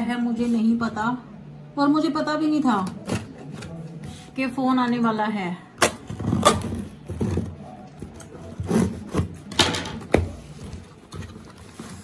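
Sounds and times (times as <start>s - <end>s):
cardboard scrapes and rustles: 10.4s - 12.0s.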